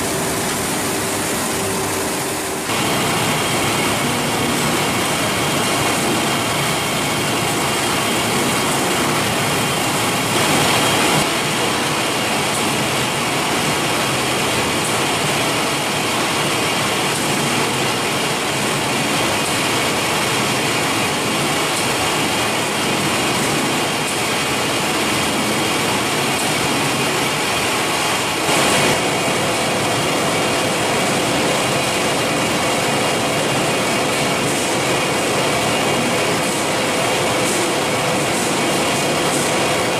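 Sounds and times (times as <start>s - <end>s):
factory machinery din: 0.0s - 39.9s.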